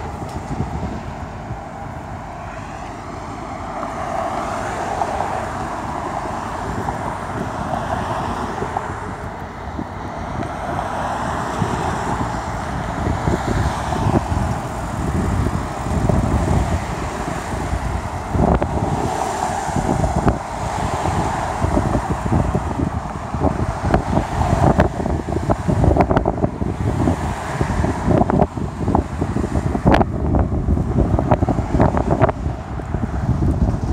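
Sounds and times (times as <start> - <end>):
cars passing: 0.0 - 33.9
wind buffeting microphone: 0.0 - 33.9.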